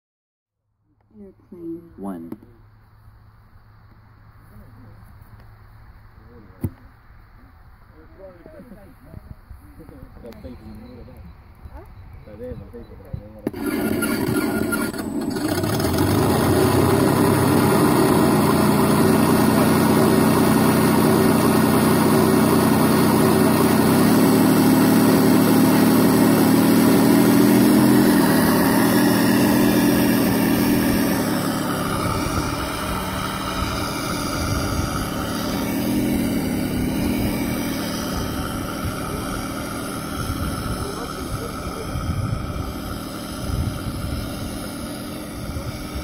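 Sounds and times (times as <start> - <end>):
simulated piston aircraft engine: 13.4 - 46.0.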